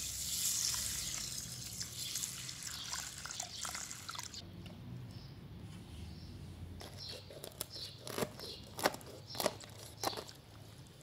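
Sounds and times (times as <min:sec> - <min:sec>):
water pouring into a plastic basin: 0:00.0 - 0:04.4.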